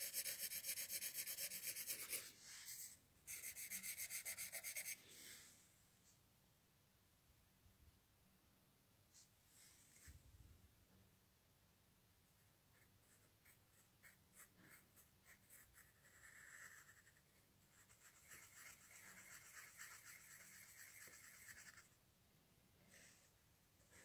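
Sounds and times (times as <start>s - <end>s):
pen scratching on paper: 0.0s - 5.0s, 12.8s - 21.9s.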